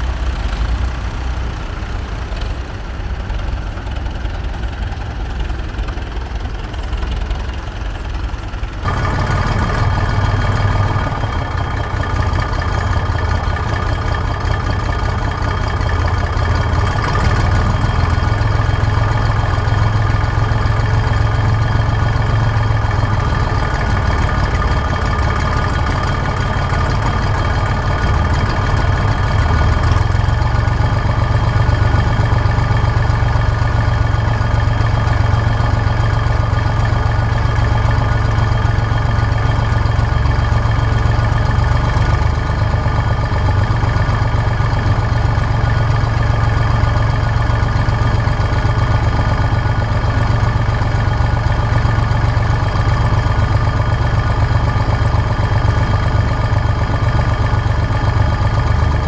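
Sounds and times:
tractor engine running: 0.0s - 59.0s.

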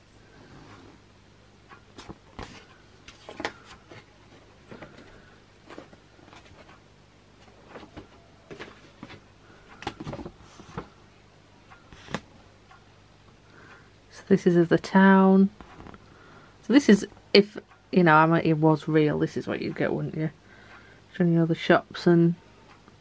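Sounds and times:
paper map rustling and crinkling: 2.0s - 6.8s.

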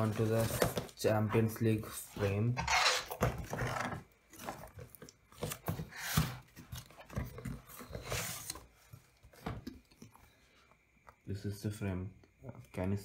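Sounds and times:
cardboard packaging scraping and rustling: 0.0s - 9.6s.

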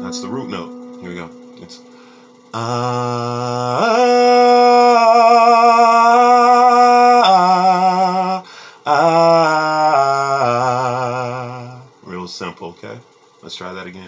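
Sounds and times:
man singing vocal warm-up: 2.5s - 12.0s.

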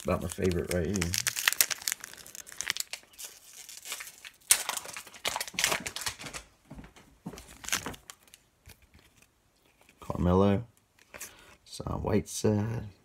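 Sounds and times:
wrapper crinkling and tearing: 0.0s - 6.5s, 7.4s - 9.3s.

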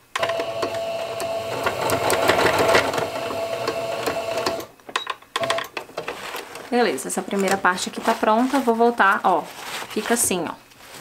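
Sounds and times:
sewing machine running: 0.2s - 4.7s.

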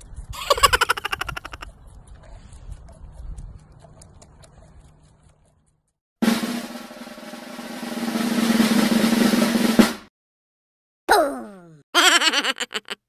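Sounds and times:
drum roll: 6.2s - 10.1s.

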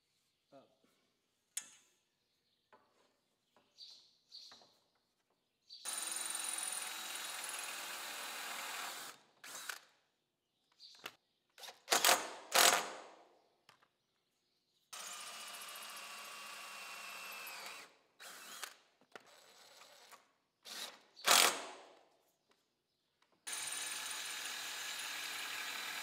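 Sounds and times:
cordless drill running: 5.9s - 9.9s, 15.0s - 21.6s, 23.5s - 26.0s.

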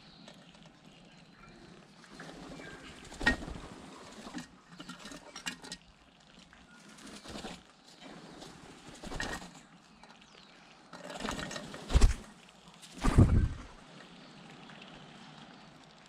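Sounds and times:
bird wing flutter and scuffling: 2.0s - 5.8s, 6.7s - 9.8s, 11.0s - 13.8s.

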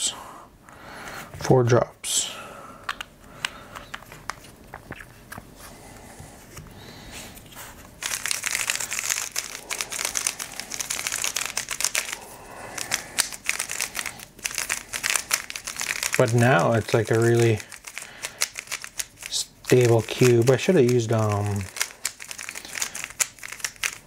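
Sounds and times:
speed cube clicking and rattling: 8.0s - 24.0s.

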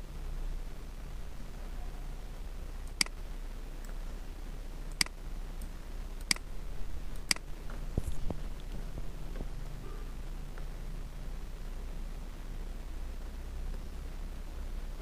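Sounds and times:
low steady hum: 0.0s - 15.0s
computer mouse clicks: 4.9s - 6.4s.

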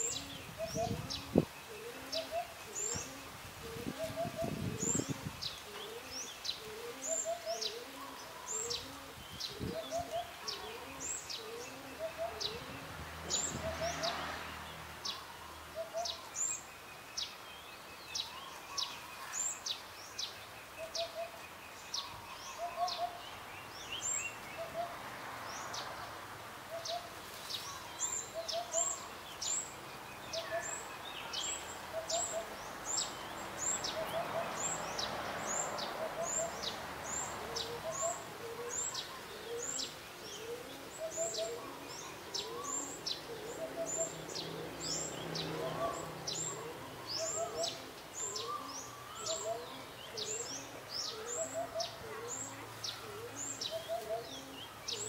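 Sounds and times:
hoopoe hooting: 0.0s - 14.1s, 35.8s - 55.0s.

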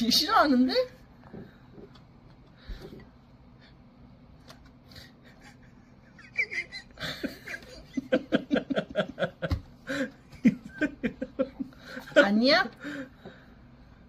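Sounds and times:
adult laughing: 5.0s - 12.4s.

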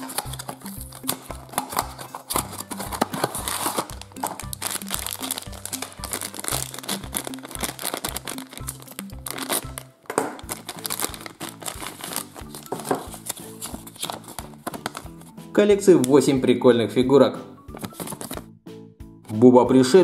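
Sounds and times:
packaging crinkling: 0.0s - 15.2s, 17.7s - 18.4s
background music with beat: 0.0s - 20.0s.

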